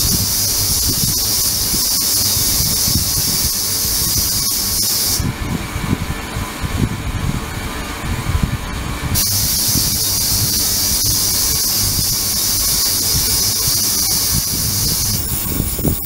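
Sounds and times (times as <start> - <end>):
ultrasonic cleaner hissing: 0.0 - 5.3, 9.1 - 16.0.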